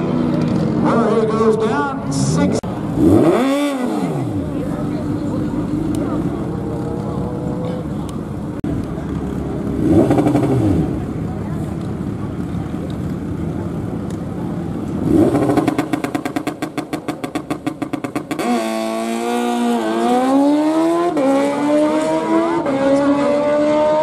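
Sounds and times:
motorcycle engine revving and accelerating: 0:02.7 - 0:07.9, 0:09.3 - 0:11.3, 0:14.9 - 0:24.0.

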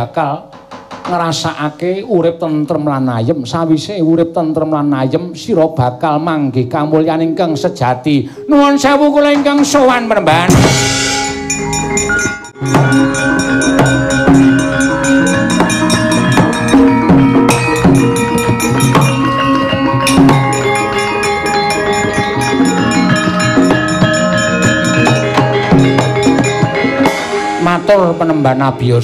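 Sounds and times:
metallophones and gongs ringing: 0:08.5 - 0:29.0
hand drum strokes: 0:12.6 - 0:27.7.

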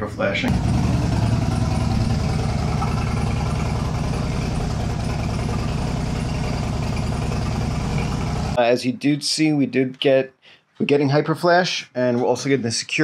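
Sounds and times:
motorcycle engine idling: 0:00.5 - 0:08.6.

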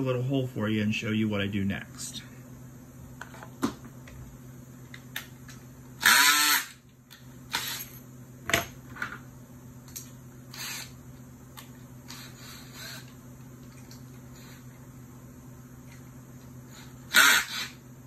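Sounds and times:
steady low hum: 0:00.0 - 0:18.0
power drill running: 0:06.0 - 0:06.8, 0:07.5 - 0:07.9, 0:10.5 - 0:11.0, 0:16.7 - 0:17.8.

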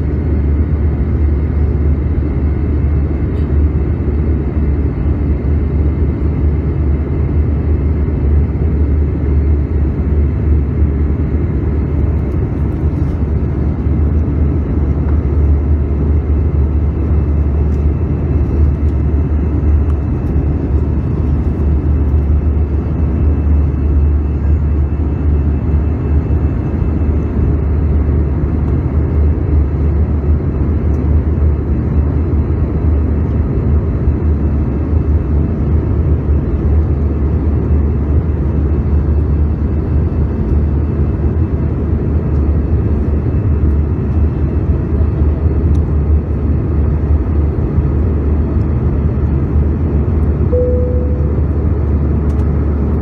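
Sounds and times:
jet engine and airflow rumble: 0:00.0 - 0:53.0
faint high whine: 0:50.5 - 0:52.1.

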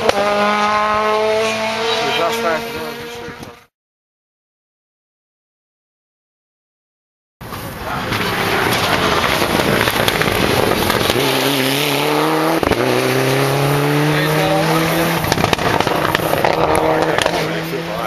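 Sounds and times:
rally car engine accelerating: 0:00.0 - 0:03.7, 0:07.6 - 0:18.0
road noise roar: 0:00.0 - 0:03.7, 0:07.4 - 0:18.0
sharp crack: 0:07.5 - 0:11.9, 0:14.4 - 0:17.5.

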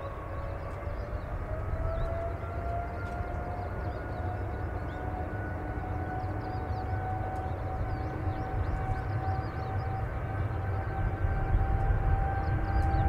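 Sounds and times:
jet engine high whine: 0:00.0 - 0:13.0
low rumble: 0:05.8 - 0:13.0.

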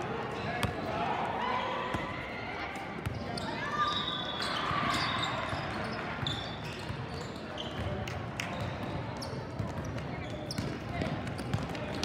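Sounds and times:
sneakers squeaking: 0:03.0 - 0:12.0
basketball bouncing on court: 0:04.8 - 0:12.0.

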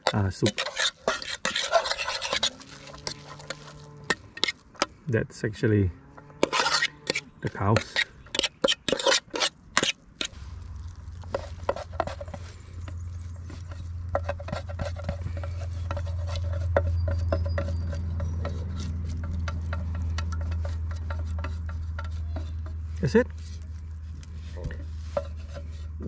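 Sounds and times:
metal utensil scraping metal tin: 0:00.0 - 0:04.9, 0:06.2 - 0:10.4, 0:11.1 - 0:23.7, 0:24.4 - 0:26.0
low rumble: 0:10.4 - 0:14.2.

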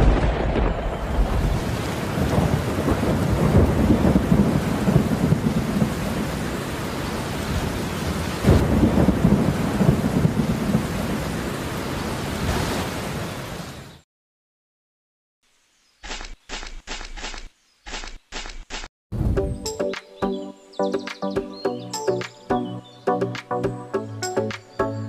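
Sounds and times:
rolling thunder: 0:00.0 - 0:06.6, 0:07.5 - 0:11.3
heavy rain: 0:00.0 - 0:13.8.

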